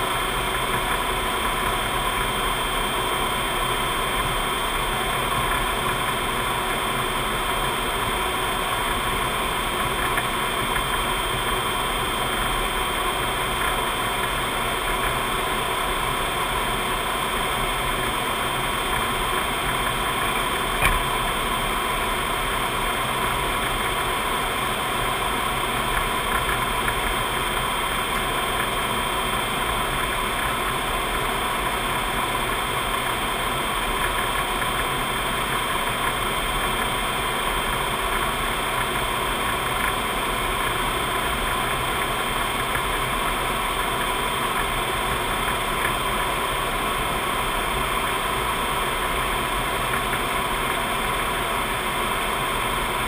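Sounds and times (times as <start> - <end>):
aircraft cockpit airflow and engine: 0.0 - 53.0.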